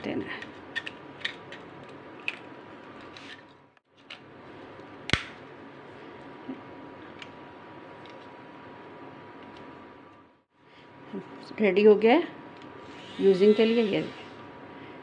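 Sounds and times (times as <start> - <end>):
sharp snap: 5.1 - 5.4.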